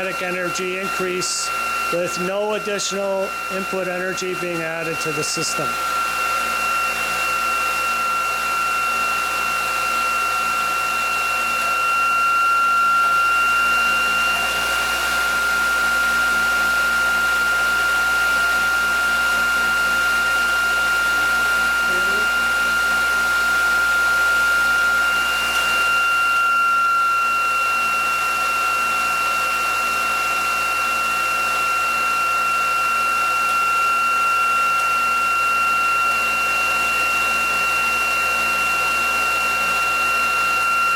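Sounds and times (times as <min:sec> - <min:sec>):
high electrical whine: 0:00.0 - 0:29.1.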